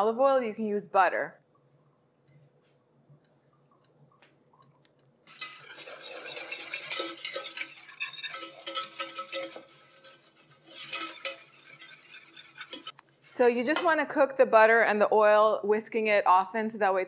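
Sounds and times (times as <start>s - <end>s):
whisk scraping a saucepan: 5.3s - 13.0s.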